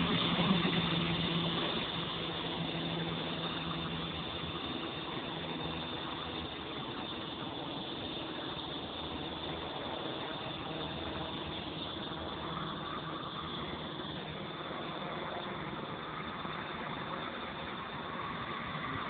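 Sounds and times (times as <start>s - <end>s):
electric motor whine: 0.0s - 19.0s
rotor blades humming: 0.0s - 19.0s.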